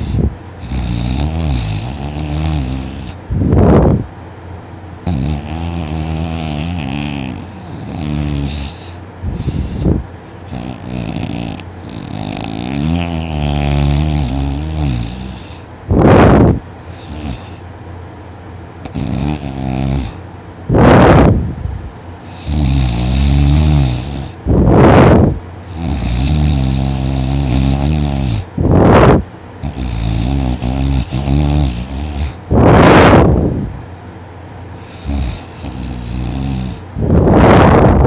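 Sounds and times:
rushing breaths: 0.0 - 1.0, 6.2 - 17.7
woman snoring loudly: 0.0 - 3.2, 5.1 - 9.9, 10.5 - 17.6, 18.9 - 20.2, 22.3 - 33.3, 34.8 - 38.0.

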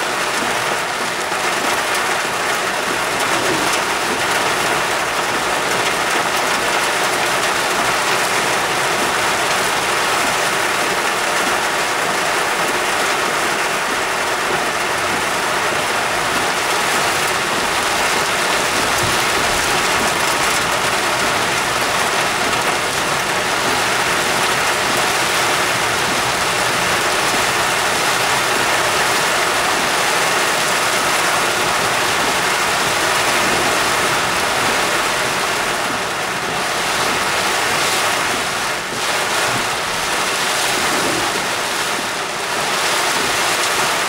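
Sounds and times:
heavy rain on car roof: 0.0 - 44.0
tyres rushing through water: 0.0 - 44.0.

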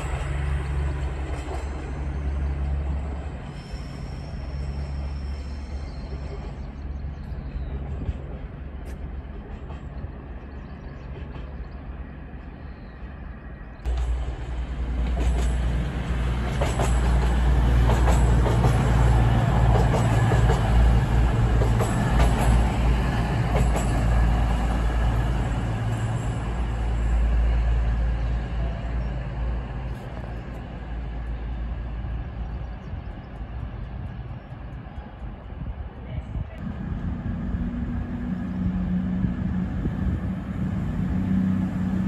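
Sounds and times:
diesel train engine drone: 0.0 - 42.0
train wheels rumbling: 0.0 - 42.0
wheels clicking over rail joints: 13.9 - 24.5.

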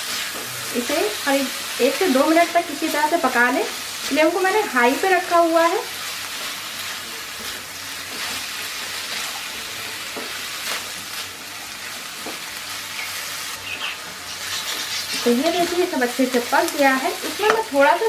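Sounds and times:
food sizzling in a wok: 0.0 - 18.0.

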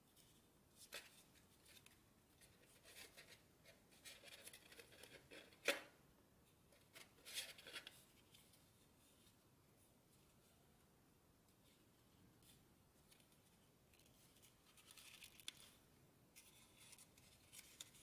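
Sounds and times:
paper rustling and crinkling: 12.4 - 15.8, 16.4 - 18.0.

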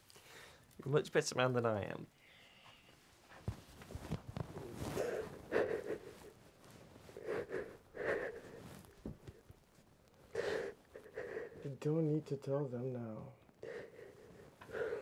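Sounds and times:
man crying and sniffling: 4.9 - 6.4, 7.2 - 8.8, 10.3 - 11.8, 13.6 - 15.0.

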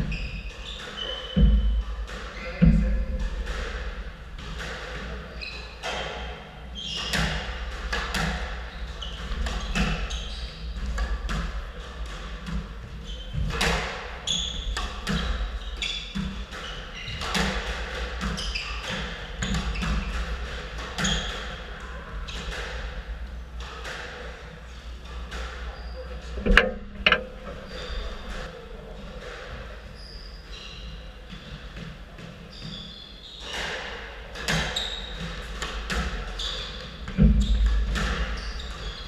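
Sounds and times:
shoes squeaking on court floor: 0.0 - 2.6, 5.3 - 7.4, 8.2 - 11.4, 12.8 - 20.1, 24.7 - 28.6, 29.8 - 33.8, 34.5 - 39.0
squash ball hitting rackets and walls: 7.0 - 10.1, 10.7 - 24.3, 25.0 - 28.5.

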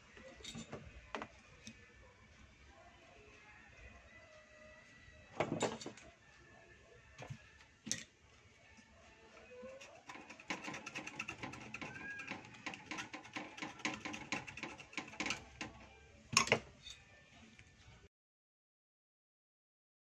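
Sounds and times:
hand tool scraping circuit board: 9.8 - 15.8.

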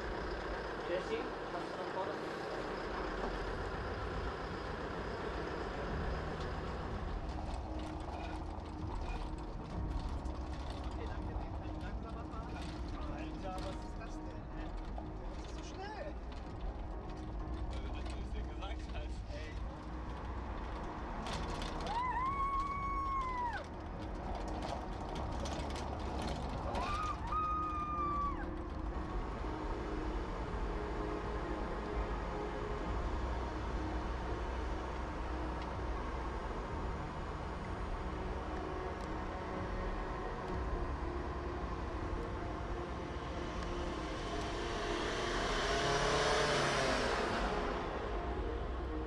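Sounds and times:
low vehicle rumble: 0.0 - 49.0
moving car engine and tyres: 0.0 - 49.0
woman whooping: 21.8 - 23.7, 26.8 - 28.5
car passing close by: 43.6 - 48.6.

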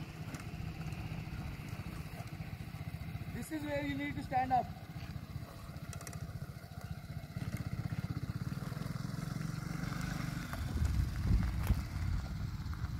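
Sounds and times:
motorcycle engine running: 0.0 - 12.9
heavy low rumbling: 10.6 - 12.9.

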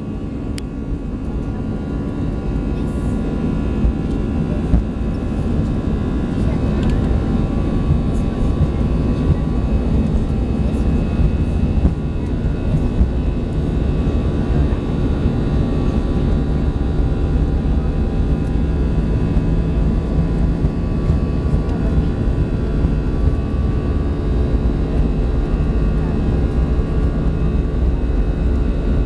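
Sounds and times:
jet engines rumbling and whining: 0.0 - 29.0
wheels rumbling on runway: 0.0 - 29.0.

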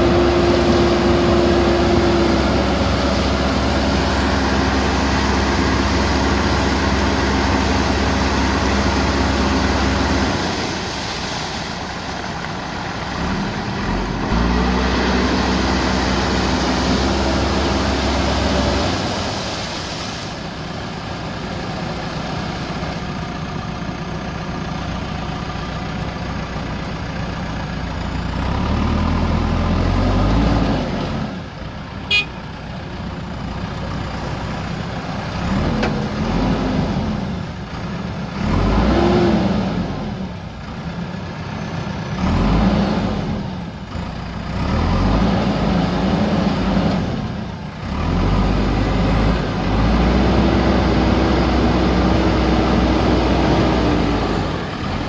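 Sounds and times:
water churning: 0.0 - 23.5
diesel engine revving: 0.0 - 32.3, 32.9 - 55.0.

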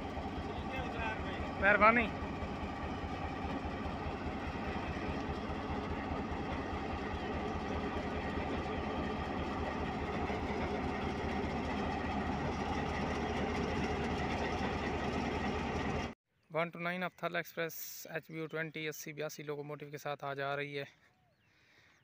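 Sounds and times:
diesel locomotive engine idling: 0.0 - 16.2.

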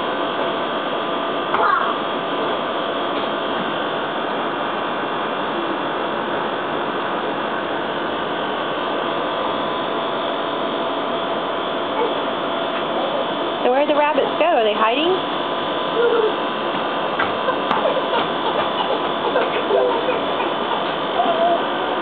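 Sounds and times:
machine hum with hiss: 0.0 - 22.0.

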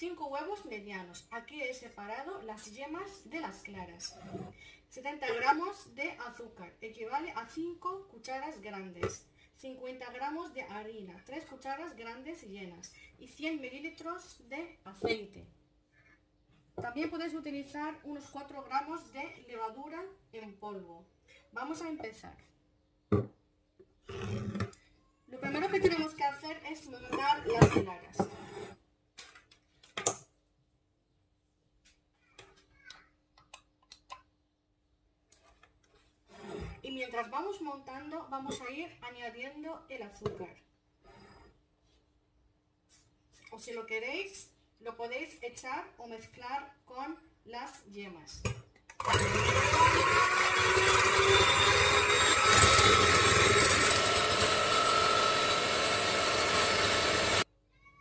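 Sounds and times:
electric hand mixer whirring: 49.0 - 57.4.

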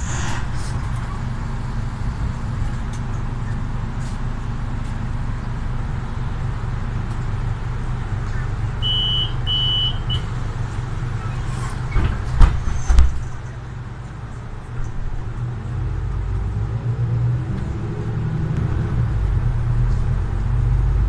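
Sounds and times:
bus diesel engine drone: 0.0 - 21.0.

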